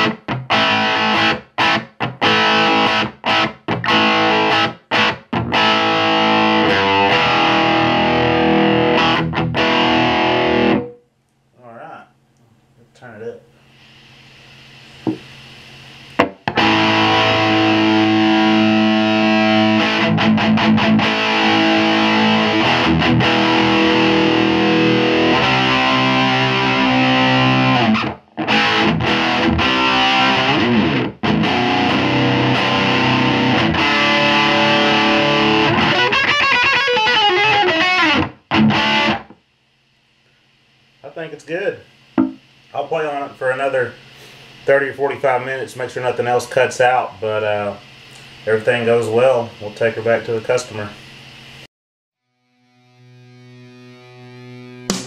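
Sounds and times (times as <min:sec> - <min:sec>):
distorted electric guitar: 0:00.0 - 0:11.0, 0:16.2 - 0:39.4, 0:52.5 - 0:55.0.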